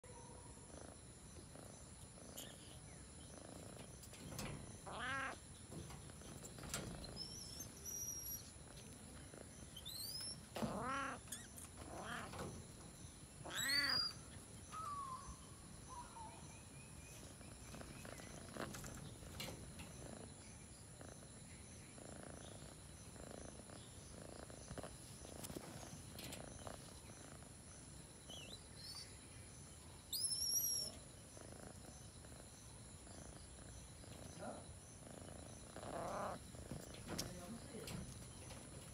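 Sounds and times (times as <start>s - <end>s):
cat meowing calls: 4.8s - 5.4s, 10.6s - 12.4s, 13.4s - 14.2s.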